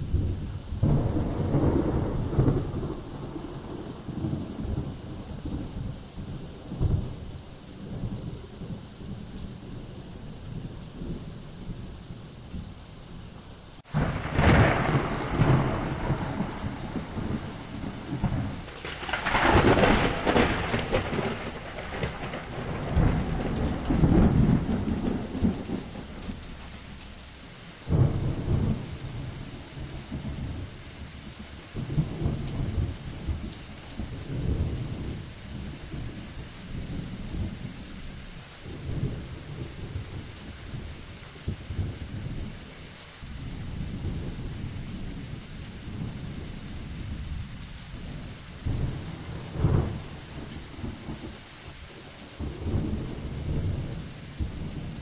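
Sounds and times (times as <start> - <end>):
rolling thunder: 0.0 - 11.9, 13.9 - 42.7, 43.3 - 55.0
steady rain: 0.0 - 55.0
sharp thunderclap: 0.1 - 4.9, 13.9 - 27.3, 27.9 - 30.6, 48.0 - 51.4.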